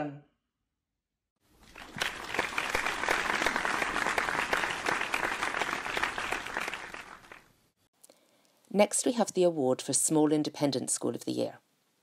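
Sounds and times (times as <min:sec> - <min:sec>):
hands clapping: 0:01.6 - 0:07.5.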